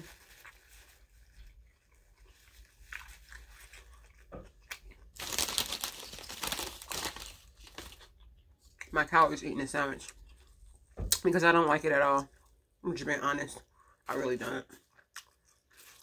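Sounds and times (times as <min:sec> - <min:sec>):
crunching and crinkling: 0:00.0 - 0:09.0, 0:14.1 - 0:16.0.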